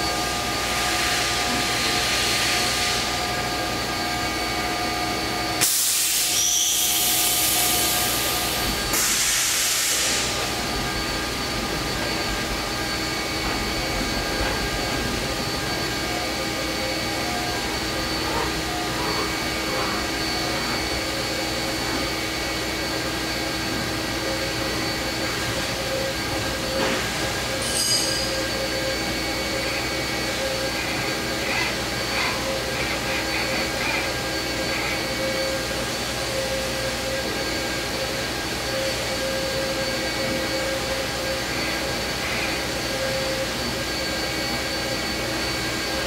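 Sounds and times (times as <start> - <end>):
machine hum with constant tones: 0.0 - 46.0
loud bursts of hiss: 5.6 - 10.6.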